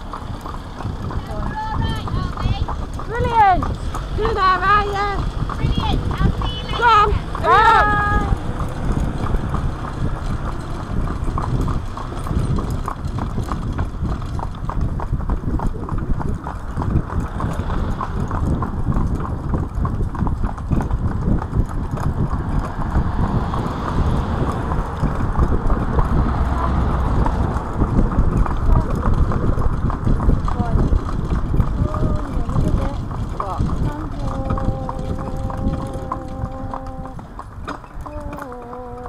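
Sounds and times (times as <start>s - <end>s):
hooves clip-clopping on tarmac: 0.0s - 39.0s
steady low rumble: 8.0s - 37.2s.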